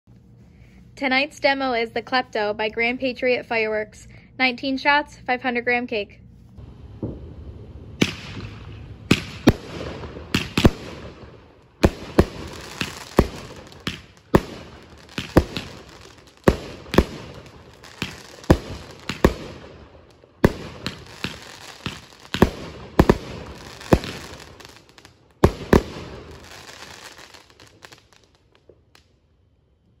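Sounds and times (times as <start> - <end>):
fireworks bangs with echo: 8.0 - 28.0.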